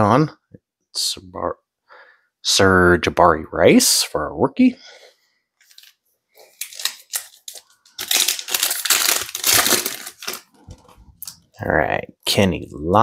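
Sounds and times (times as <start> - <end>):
plastic foil wrapper crinkling: 5.6 - 11.4.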